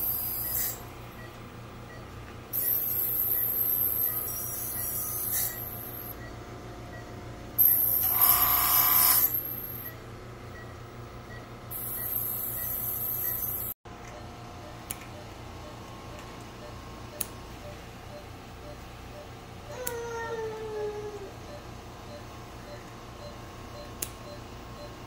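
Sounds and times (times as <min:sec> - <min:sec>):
dental scaler high whine: 0:00.0 - 0:01.0, 0:02.6 - 0:06.2, 0:07.6 - 0:10.0, 0:11.7 - 0:13.8.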